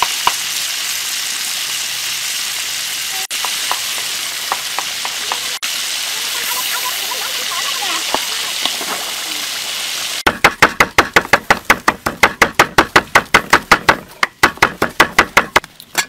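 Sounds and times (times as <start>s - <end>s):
fish sizzling in hot oil: 0.0s - 10.6s
cleaver chopping on wooden board: 10.3s - 15.7s.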